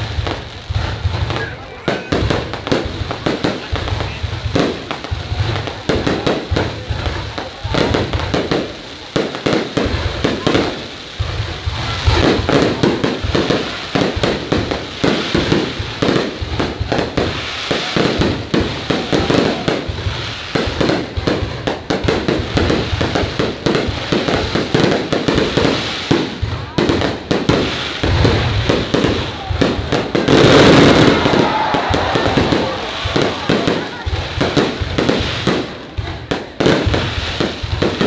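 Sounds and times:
fireworks bursting: 0:00.0 - 0:38.0.

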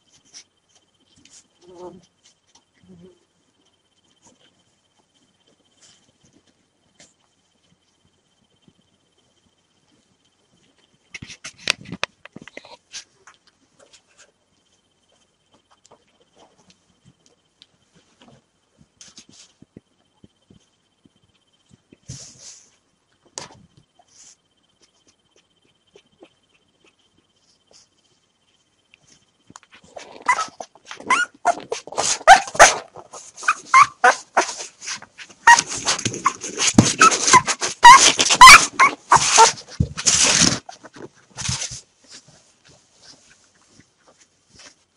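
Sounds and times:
puppies squeaking and whimpering: 0:30.0 - 0:34.5, 0:35.4 - 0:39.6.

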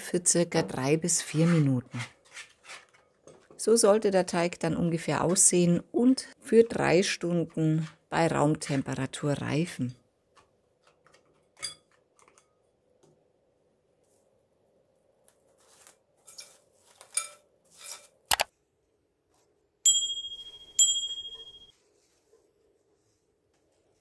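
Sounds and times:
bright ringing dings: 0:19.9 - 0:21.8.

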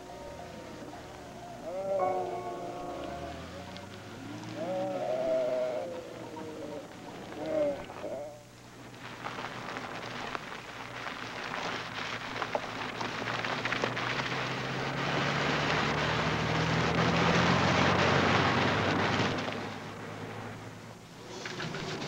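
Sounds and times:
car engine: 0:00.0 - 0:07.2, 0:08.7 - 0:22.0
tyres crunching on gravel: 0:08.6 - 0:16.0.

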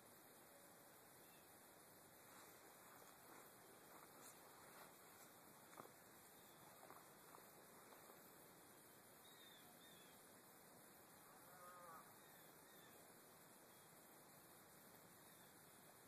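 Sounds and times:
faint high chirps: 0:09.2 - 0:10.4, 0:12.1 - 0:14.1, 0:15.1 - 0:16.0.

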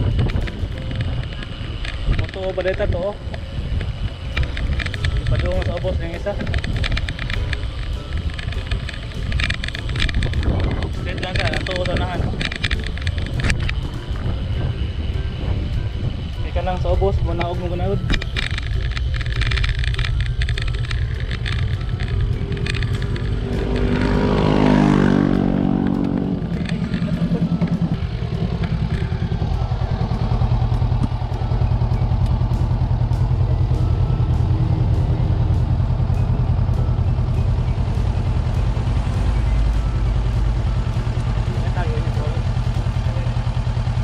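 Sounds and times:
steady low rumble: 0:00.0 - 0:44.0
motor vehicle passing by: 0:20.2 - 0:44.0.

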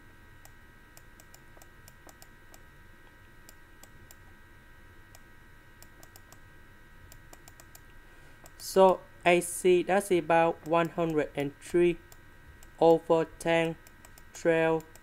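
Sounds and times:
faint electrical hum: 0:00.0 - 0:15.0
computer mouse clicks: 0:00.4 - 0:02.7, 0:03.4 - 0:04.2, 0:05.8 - 0:06.4, 0:07.1 - 0:09.0, 0:13.8 - 0:15.0.

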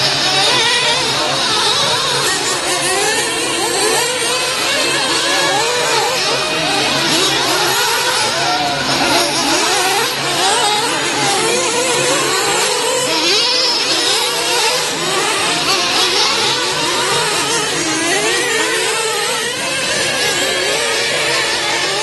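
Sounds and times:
small engines whining: 0:00.0 - 0:22.0.

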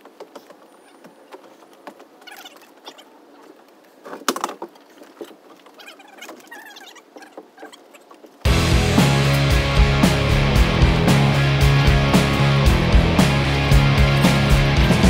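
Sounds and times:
knocks of wooden rafters: 0:04.0 - 0:08.4.

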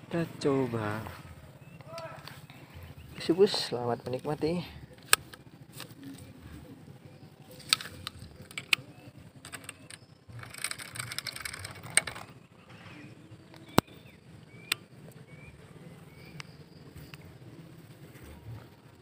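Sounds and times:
faint reel gear rattle: 0:07.6 - 0:12.4
reel spool whirring: 0:09.4 - 0:12.3
fishing reel clicks: 0:09.5 - 0:12.3.

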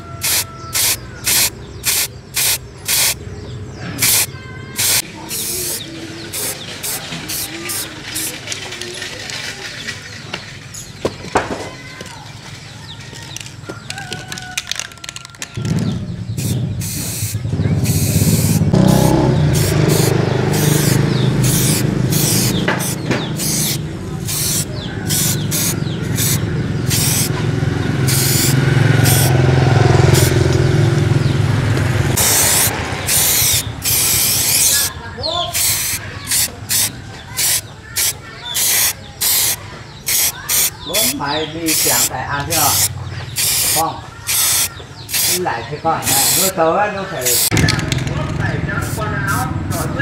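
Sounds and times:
spray paint can hissing: 0:00.1 - 0:03.2, 0:04.0 - 0:08.6, 0:14.7 - 0:27.4, 0:28.1 - 0:29.3, 0:32.2 - 0:34.9, 0:35.5 - 0:46.6, 0:47.2 - 0:47.7, 0:48.8 - 0:50.0.

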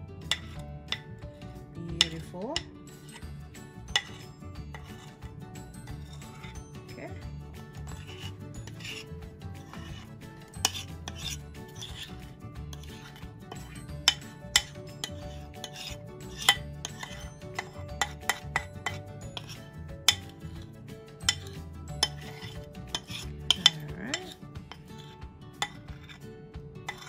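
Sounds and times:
metal spoon clinking on bowl: 0:03.8 - 0:05.2, 0:09.9 - 0:12.1, 0:12.7 - 0:20.6, 0:21.2 - 0:25.9.

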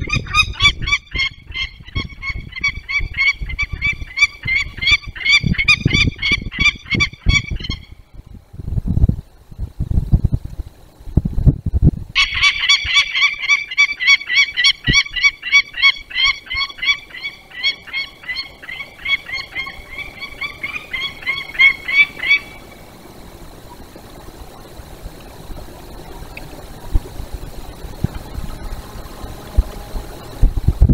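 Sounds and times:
falcon alarm call: 0:00.0 - 0:08.0, 0:12.2 - 0:23.2.

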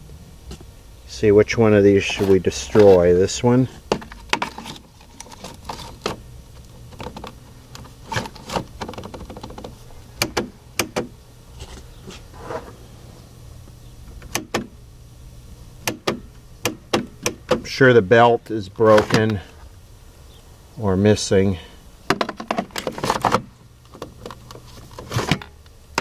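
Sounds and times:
steady low hum: 0:00.0 - 0:26.0
plastic cartridge clicks and knocks: 0:22.1 - 0:24.6.

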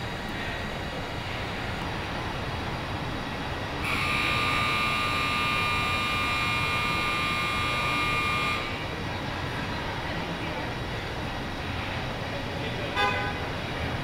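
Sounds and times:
high-pitched machine whine: 0:00.0 - 0:09.2
factory rumble: 0:00.0 - 0:14.0.

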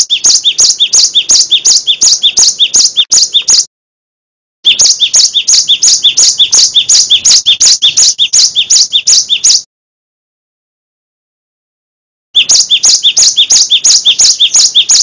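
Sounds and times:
bird singing sharp notes: 0:00.0 - 0:03.7, 0:04.7 - 0:09.7, 0:12.4 - 0:15.0.

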